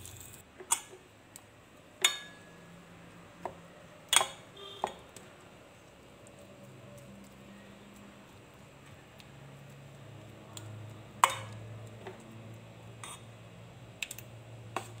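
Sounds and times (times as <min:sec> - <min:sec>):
spoon clinking against pot: 0:02.0 - 0:02.5
metal spoon stirring in a pot: 0:11.1 - 0:12.3, 0:12.9 - 0:13.4.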